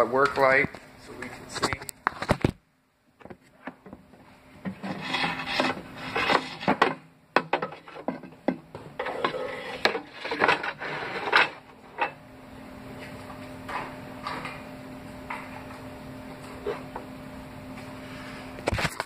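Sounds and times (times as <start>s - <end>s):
objects rubbed and knocked together: 4.6s - 7.0s, 7.6s - 11.7s.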